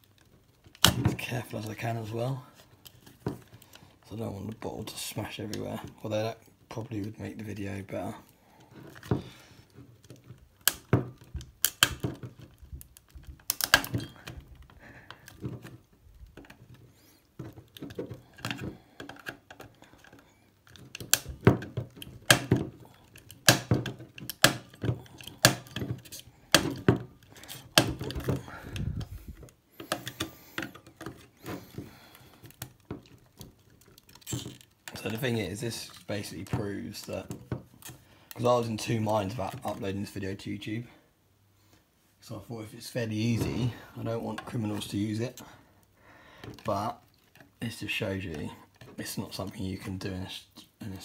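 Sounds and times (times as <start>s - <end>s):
screwdriver clicking on plastic: 10.0s - 15.6s, 17.4s - 29.2s.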